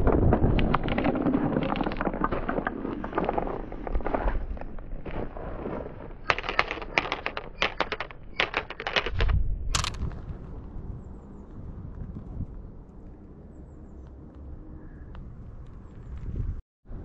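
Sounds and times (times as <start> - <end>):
marbles clicking on wooden track: 0.1 - 5.2, 6.2 - 10.0.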